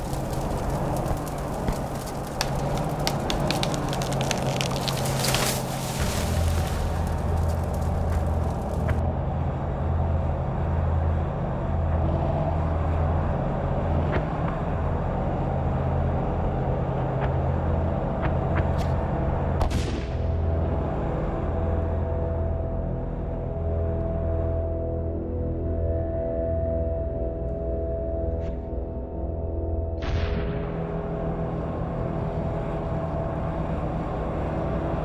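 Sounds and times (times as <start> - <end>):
tank rumbling: 0.0 - 19.6.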